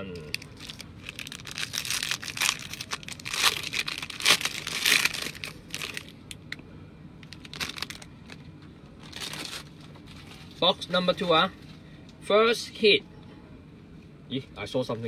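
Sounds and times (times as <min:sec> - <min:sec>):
foil wrapper crinkling: 0:00.2 - 0:06.1, 0:07.2 - 0:08.4, 0:09.0 - 0:10.4.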